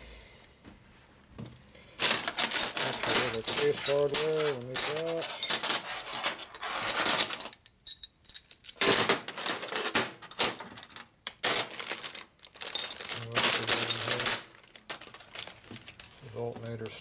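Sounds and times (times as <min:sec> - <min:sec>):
steel hardware clinking: 0:02.0 - 0:09.9, 0:12.7 - 0:14.5.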